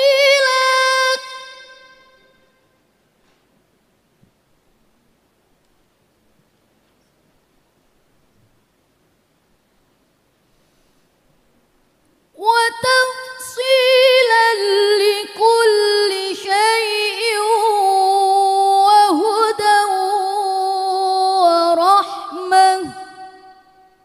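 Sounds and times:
woman reciting into a microphone: 0:00.0 - 0:02.3, 0:12.4 - 0:24.0.

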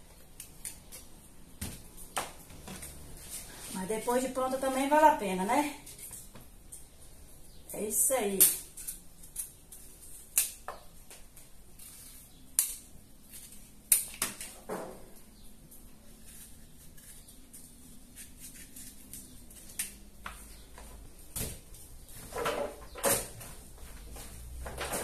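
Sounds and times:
knife scraping: 0:16.0 - 0:19.8
knife cutting pumpkin: 0:16.1 - 0:20.0.

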